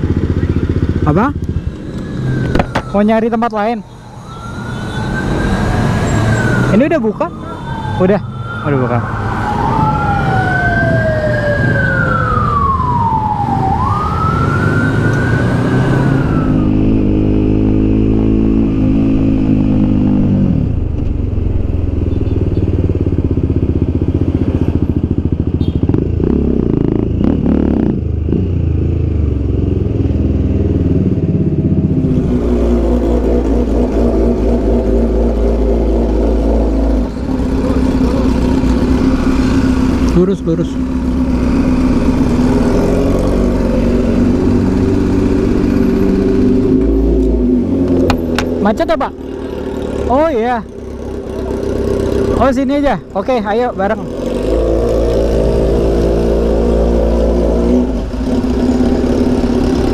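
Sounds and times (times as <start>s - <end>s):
motorcycle engine revving: 0.0s - 3.4s, 4.4s - 59.9s
road noise: 0.0s - 59.9s
siren wailing: 1.8s - 22.2s.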